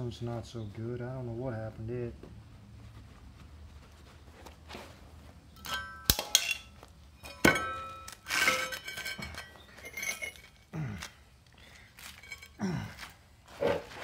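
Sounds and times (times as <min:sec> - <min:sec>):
metallic clinks on steel: 0:05.6 - 0:10.6.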